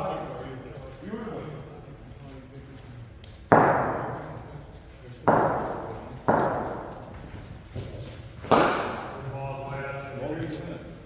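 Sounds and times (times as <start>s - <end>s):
cricket ball knocks in a hall: 3.3s - 4.6s, 5.2s - 9.2s.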